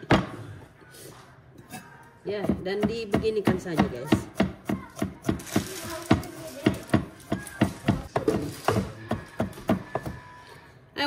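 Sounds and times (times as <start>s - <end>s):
knife chopping on wooden board: 2.4s - 10.2s.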